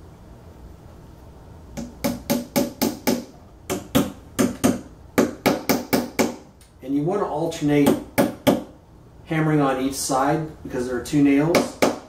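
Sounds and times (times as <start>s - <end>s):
hammer striking nails: 1.8s - 6.4s, 7.8s - 8.7s, 11.5s - 12.0s.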